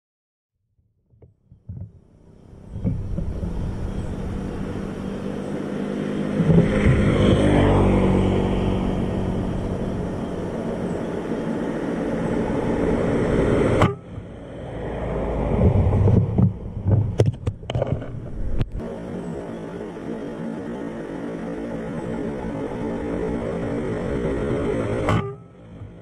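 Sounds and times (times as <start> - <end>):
low rumbling background: 1.5 - 26.0
thumps: 15.6 - 18.8.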